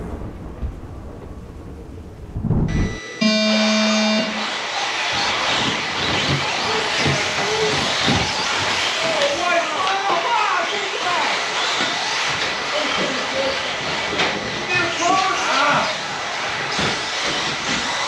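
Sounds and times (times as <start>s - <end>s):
low rumble: 0.0s - 3.2s
electronic start tone: 2.6s - 4.5s
short motor whines: 2.7s - 9.7s
rc trucks racing hiss: 4.0s - 18.0s.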